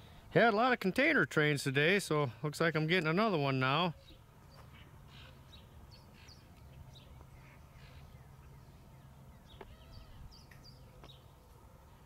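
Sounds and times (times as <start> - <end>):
low steady hum: 0.0 - 12.0
bird chirps and calls: 3.9 - 11.5.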